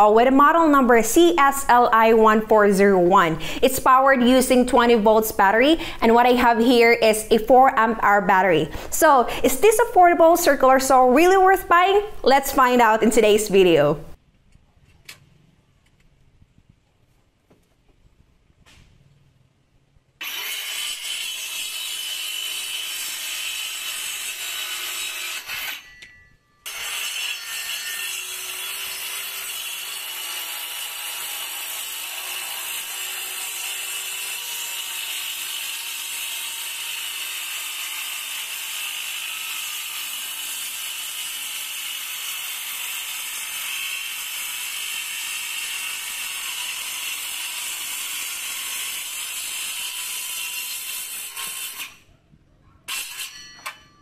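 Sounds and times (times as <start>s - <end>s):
circular saw cutting wood: 20.2s - 26.1s, 26.7s - 52.0s, 52.9s - 53.6s.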